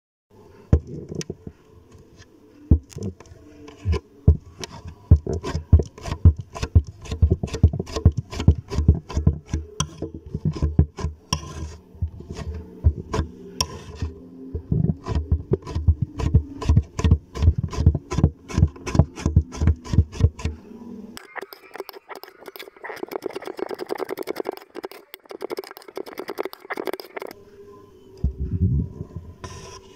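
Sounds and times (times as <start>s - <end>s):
knife scraping clay: 2.2s - 20.6s, 21.2s - 27.4s, 29.4s - 29.9s.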